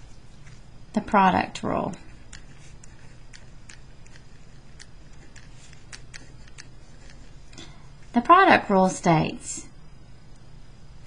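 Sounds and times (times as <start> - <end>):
pen scratching on paper: 1.9 - 7.5.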